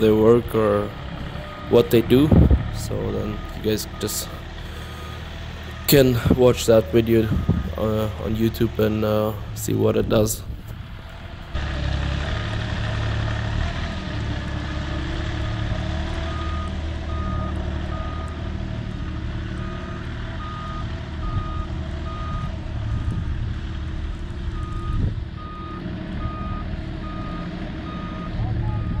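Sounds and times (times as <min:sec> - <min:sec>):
vehicle engine running: 0:00.0 - 0:29.0
reversing alarm beeping: 0:01.4 - 0:08.6, 0:16.3 - 0:18.4, 0:19.6 - 0:23.0, 0:24.6 - 0:29.0.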